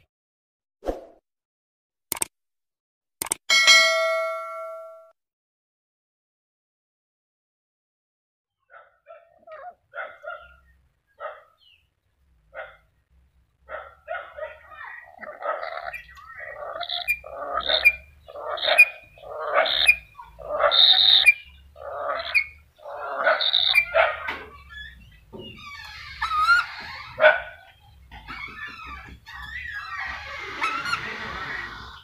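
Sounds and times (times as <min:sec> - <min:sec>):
parrot harsh calls: 0:13.7 - 0:32.0
parrot chattering and whistles: 0:15.1 - 0:27.1.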